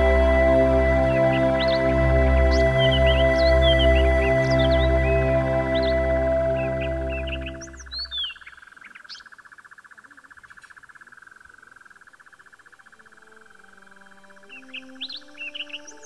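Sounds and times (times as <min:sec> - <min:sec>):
background music: 0:00.0 - 0:08.2, 0:12.8 - 0:16.0
bird chirps: 0:00.0 - 0:16.0.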